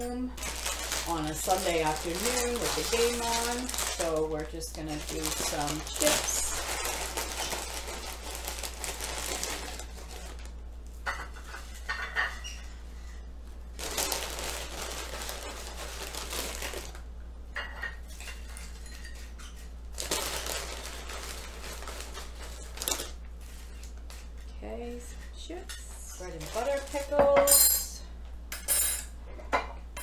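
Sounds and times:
plastic bag rustling: 0.0s - 10.7s, 13.7s - 17.0s, 18.4s - 24.6s, 26.2s - 27.5s.

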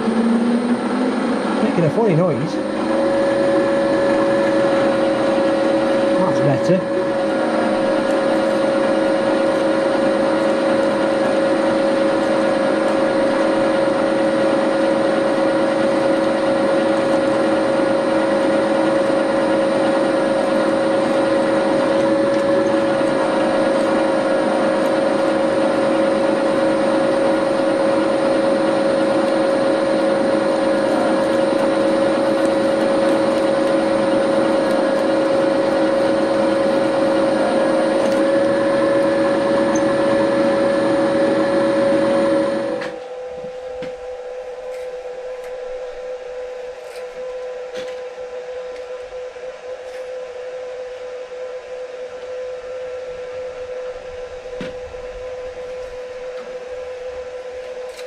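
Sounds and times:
milling machine drilling steel: 0.8s - 42.9s.

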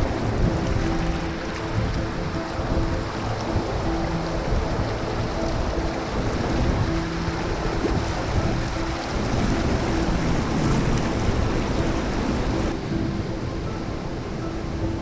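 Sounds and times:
stream water rushing over rocks: 0.0s - 15.0s.

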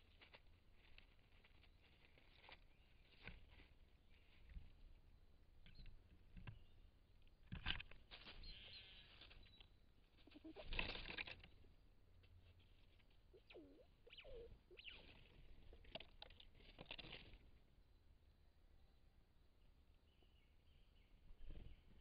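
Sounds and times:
squirrel rustling and scratching: 0.0s - 17.7s
short low dipping calls: 10.2s - 10.8s, 13.3s - 15.6s.

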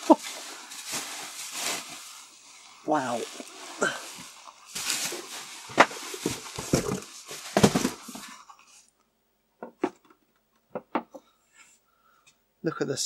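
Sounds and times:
bubble wrap and plastic rustling: 0.0s - 8.9s.

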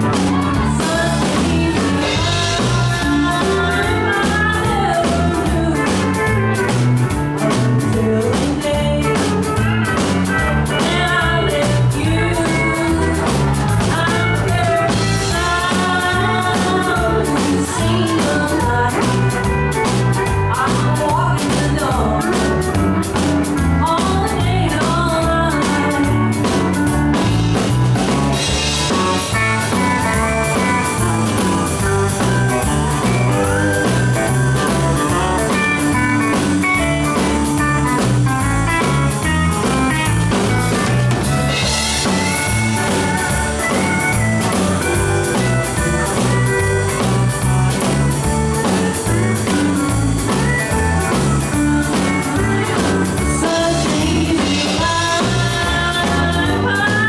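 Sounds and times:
country band playing: 0.0s - 57.0s
woman singing: 0.1s - 6.8s, 7.4s - 22.9s, 23.5s - 26.8s, 51.9s - 57.0s.

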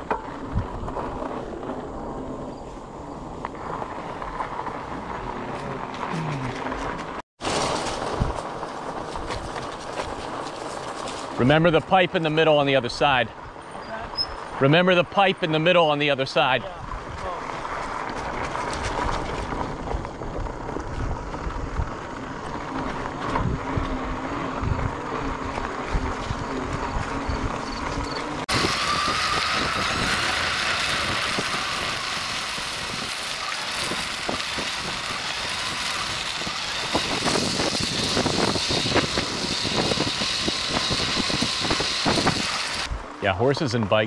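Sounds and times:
bike tyres rushing over gravel: 0.0s - 44.0s
wind on microphone: 18.6s - 43.1s.

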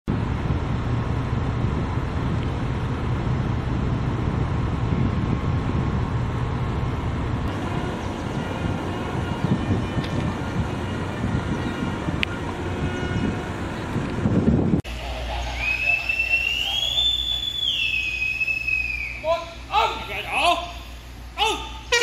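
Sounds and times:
wind buffeting microphone: 0.1s - 14.9s
steady low rumble: 0.1s - 22.0s.

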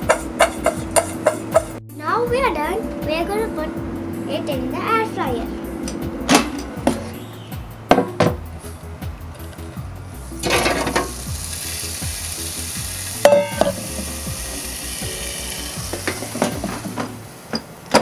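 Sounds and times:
steady hiss: 7.7s - 18.0s
steel bowl clank: 10.4s - 11.2s, 13.2s - 17.7s.

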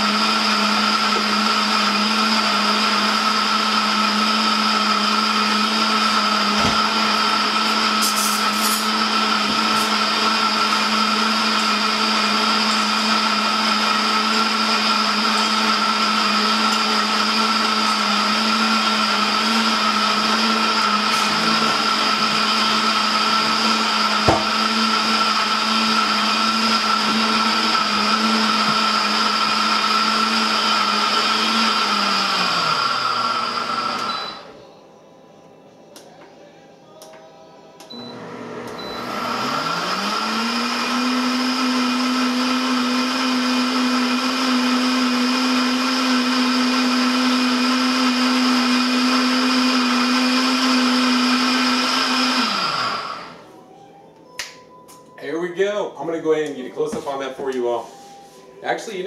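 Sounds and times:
blender motor humming: 0.0s - 34.6s, 38.0s - 53.5s.

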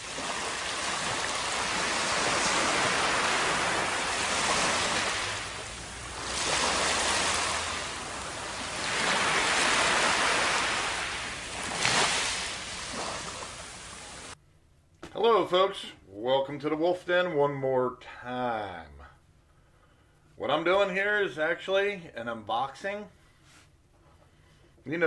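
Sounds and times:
surf washing over sand: 0.0s - 14.4s.

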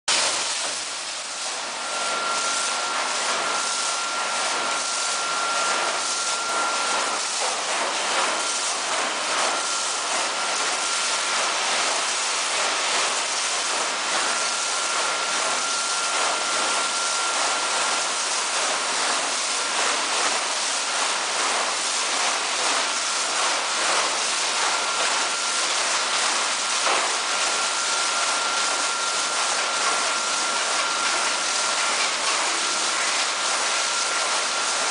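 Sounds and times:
water jets spraying: 0.1s - 34.9s
thin high whine: 1.7s - 7.2s.

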